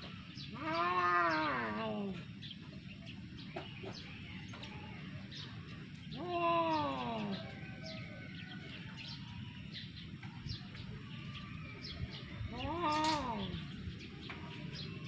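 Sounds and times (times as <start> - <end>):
birds chirping: 0.0 - 15.0
cat yowling: 0.5 - 2.1.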